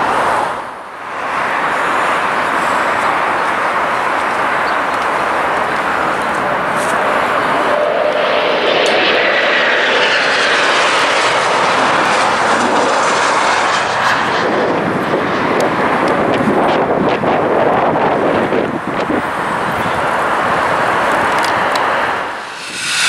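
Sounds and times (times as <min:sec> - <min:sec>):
jet engine noise: 0:00.0 - 0:23.0
thin whine: 0:21.7 - 0:23.0.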